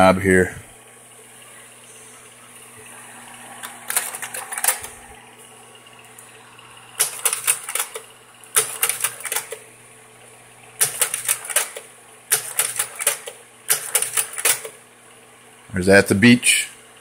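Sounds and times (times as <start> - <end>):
projector hum: 0.0 - 17.0
projector mechanism clicking: 3.6 - 5.1, 6.0 - 9.7, 10.8 - 14.8.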